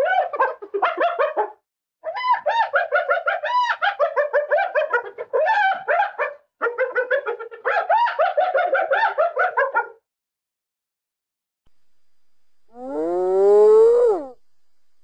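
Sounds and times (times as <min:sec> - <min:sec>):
hyena giggling yelps: 0:00.0 - 0:09.9.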